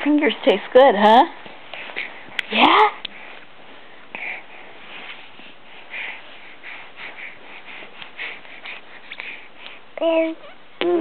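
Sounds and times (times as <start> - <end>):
baby sniffing: 4.1 - 9.9
baby mouth sounds: 10.0 - 11.0.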